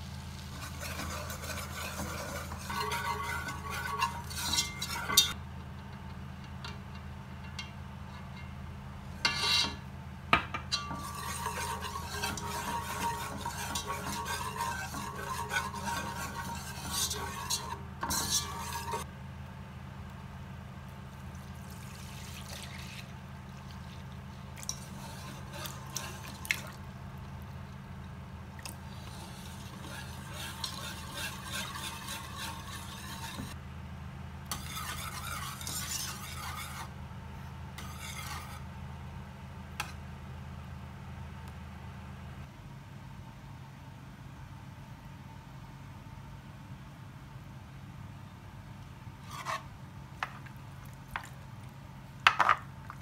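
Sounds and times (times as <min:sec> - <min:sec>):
steady low hum: 0:00.0 - 0:53.0
whisk scraping a pot: 0:00.4 - 0:05.4, 0:09.2 - 0:09.8, 0:10.7 - 0:19.1, 0:21.8 - 0:24.0, 0:24.6 - 0:26.8, 0:28.8 - 0:33.6, 0:34.5 - 0:37.0, 0:37.8 - 0:38.7, 0:49.2 - 0:51.6
milk pouring: 0:21.3 - 0:24.7.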